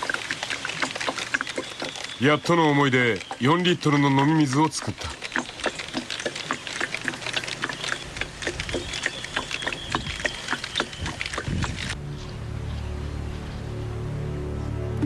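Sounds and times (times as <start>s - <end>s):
water dripping into plastic can: 0.0s - 12.0s
background music: 12.0s - 15.0s.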